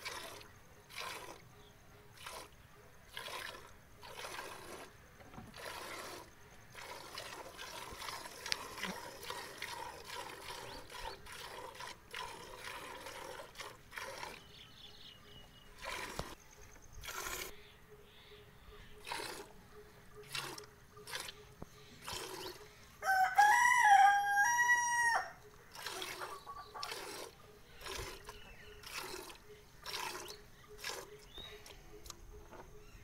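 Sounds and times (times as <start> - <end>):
milk squirting into steel bucket: 0.0 - 1.4, 2.1 - 14.5, 15.8 - 16.4, 19.0 - 19.5, 20.2 - 22.6, 25.7 - 31.7
rooster crowing: 23.0 - 25.4.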